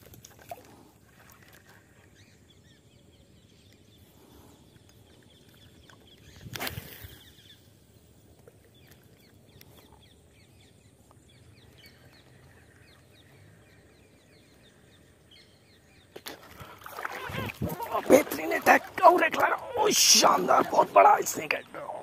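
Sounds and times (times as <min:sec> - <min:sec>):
birds chirping: 0:01.8 - 0:22.0
water splashing: 0:16.2 - 0:22.0.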